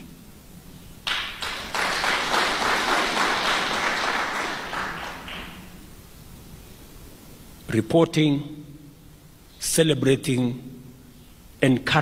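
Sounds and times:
crowd applauding: 1.0s - 5.8s.

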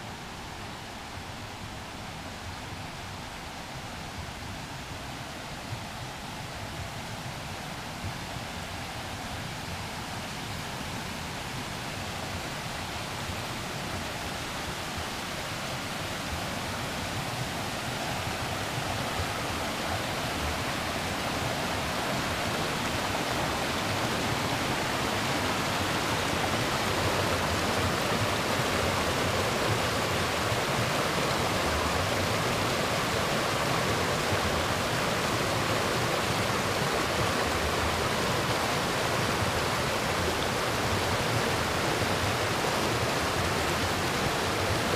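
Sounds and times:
creek rushing over rocks: 0.0s - 44.9s.

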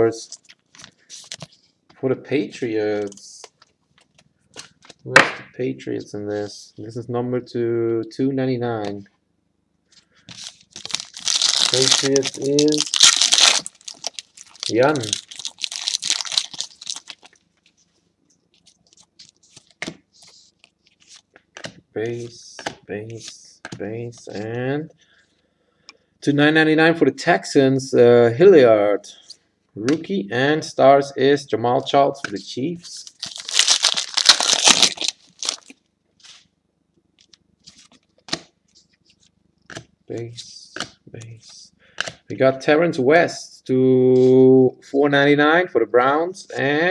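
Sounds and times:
cards rustling and clicking: 10.2s - 17.8s, 18.5s - 21.8s, 33.0s - 36.5s
foil wrapper crinkling: 10.3s - 17.7s, 33.0s - 35.8s.

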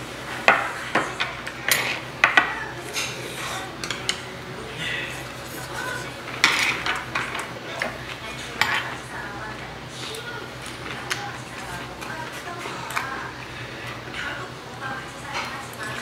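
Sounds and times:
spoons clinking against bowls: 0.5s - 4.3s, 5.6s - 9.2s.

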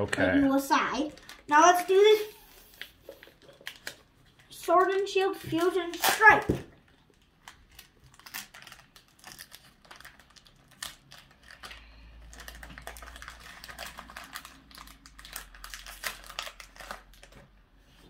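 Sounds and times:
foil wrapper tearing and crinkling: 2.6s - 5.0s, 5.6s - 17.5s.

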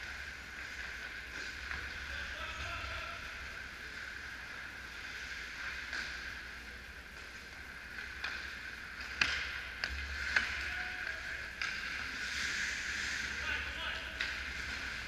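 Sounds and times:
hockey sticks clacking on puck: 0.0s - 2.8s, 5.2s - 6.5s, 7.2s - 15.0s.

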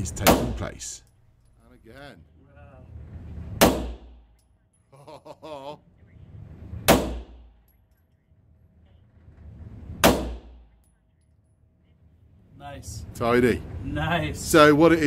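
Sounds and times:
handgun shots echoing indoors: 0.2s - 0.6s, 3.6s - 4.4s, 6.9s - 7.7s, 10.0s - 11.0s.

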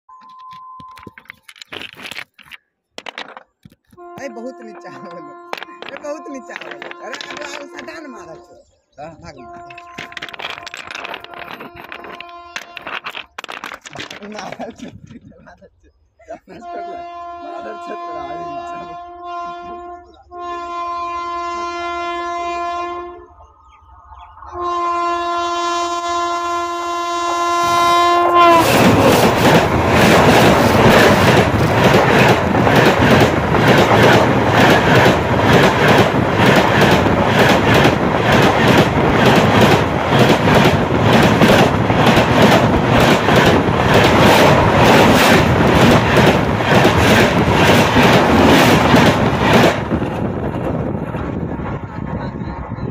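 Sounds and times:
clickety-clack over rail joints: 2.4s - 8.3s, 9.3s - 15.2s, 27.7s - 52.3s
train horn blasts: 4.0s - 8.6s, 9.2s - 10.1s, 16.5s - 23.4s, 24.5s - 29.0s
train wheels rushing on rail: 27.6s - 52.9s.

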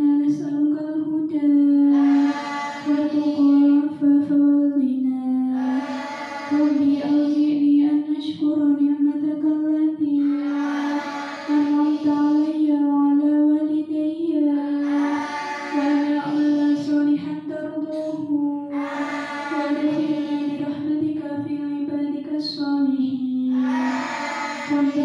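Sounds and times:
girls chanting a prayer in unison: 0.0s - 4.4s, 5.4s - 8.4s, 10.1s - 13.4s, 14.3s - 21.9s, 23.5s - 25.0s.

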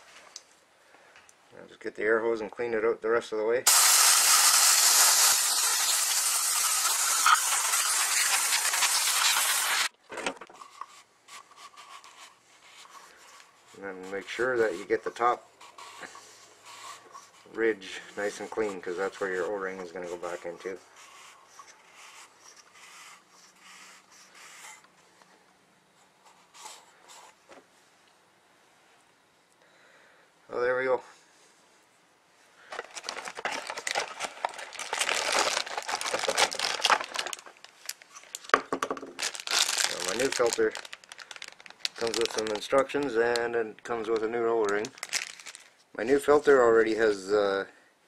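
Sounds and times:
compressed air hissing: 3.7s - 9.9s
rag rubbing: 4.3s - 9.9s, 11.4s - 23.2s.

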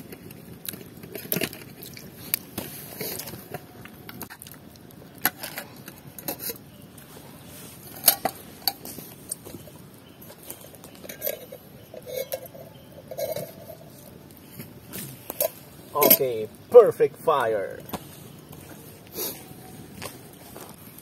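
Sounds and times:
pots and utensils clicking: 10.2s - 14.1s.

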